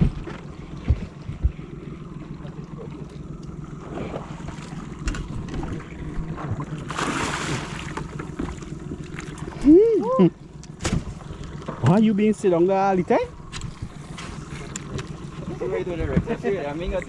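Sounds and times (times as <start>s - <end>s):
wind rumbling on microphone: 0.0s - 1.8s
fish thrashing splash: 3.7s - 9.6s.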